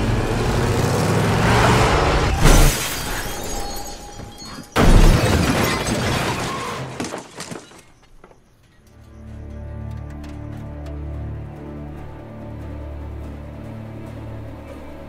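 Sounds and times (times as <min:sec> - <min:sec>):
car crash impact: 0:02.2 - 0:08.0
crash with shattering: 0:02.2 - 0:08.0
low sustained music: 0:08.8 - 0:15.0.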